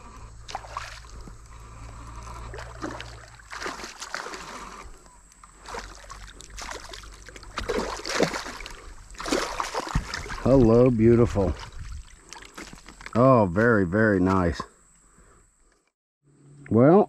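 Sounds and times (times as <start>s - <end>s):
stream water splashing: 0.4s - 13.0s.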